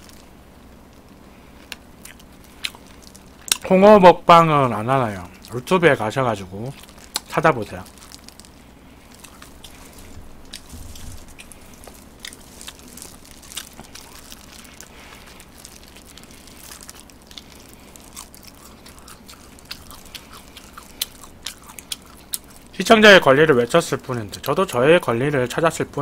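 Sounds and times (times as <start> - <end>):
chewing crunchy food: 0.0 - 3.8, 5.1 - 22.8.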